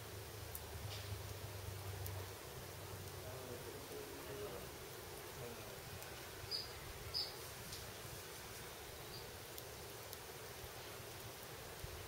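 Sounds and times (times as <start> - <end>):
steady outdoor hiss: 0.0 - 12.0
high bird chirps: 6.5 - 7.4.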